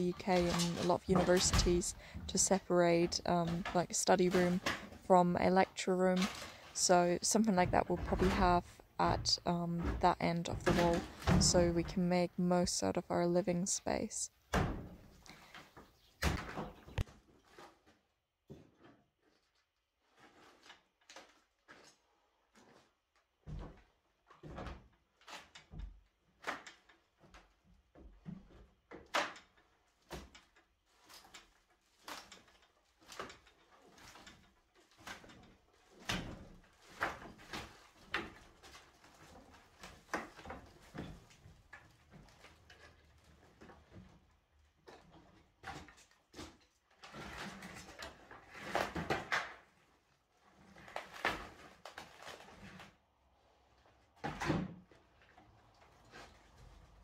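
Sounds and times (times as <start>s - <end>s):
wood cracking and breaking: 44.8s - 52.9s.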